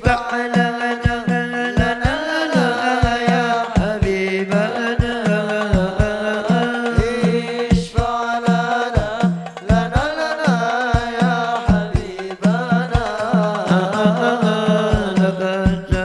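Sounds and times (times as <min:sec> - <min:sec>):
drum beat: 0:00.0 - 0:16.0
person singing ornamented melody: 0:00.0 - 0:16.0.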